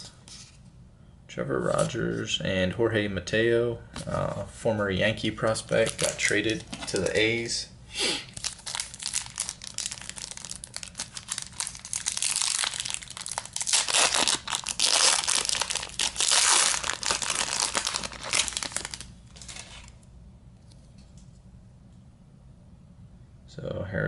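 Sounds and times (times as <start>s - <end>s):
foil wrapper tearing and crinkling: 8.3s - 20.0s.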